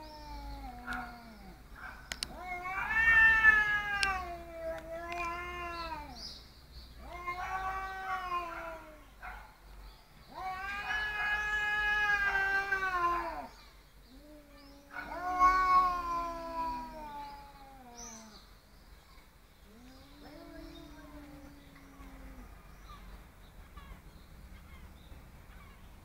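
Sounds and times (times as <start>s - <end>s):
cats yowling: 0.0s - 6.2s, 7.0s - 9.4s, 10.3s - 18.4s, 19.7s - 23.0s.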